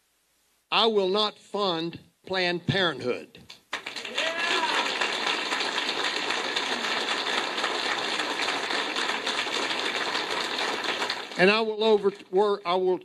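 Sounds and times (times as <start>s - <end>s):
audience applauding: 3.7s - 11.5s.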